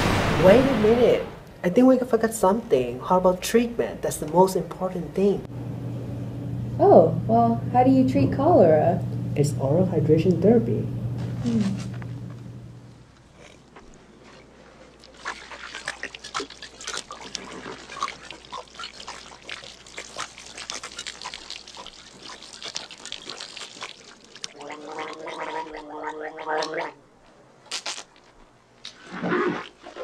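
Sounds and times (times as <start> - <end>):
man gargling: 24.5 - 27.0.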